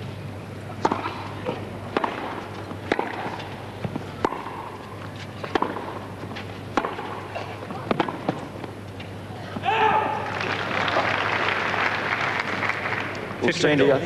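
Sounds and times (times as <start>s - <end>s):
tennis ball hit by racquets: 0.8s - 9.7s.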